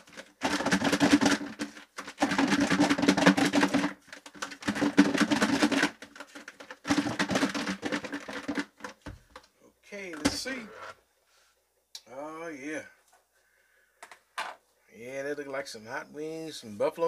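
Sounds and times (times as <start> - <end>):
wings rattling in plastic bowl: 0.0 - 9.4.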